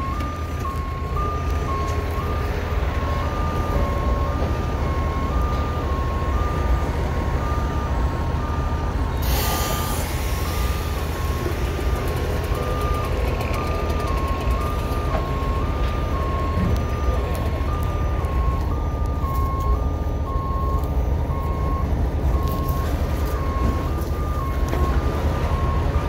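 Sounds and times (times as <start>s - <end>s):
low engine rumble: 0.0s - 26.0s
two-tone reversing alarm: 0.0s - 26.0s
sharp hiss: 9.2s - 11.0s.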